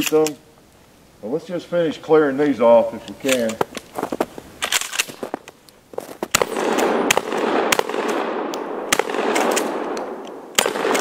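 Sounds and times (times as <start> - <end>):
shotgun shots echoing: 6.3 - 11.0.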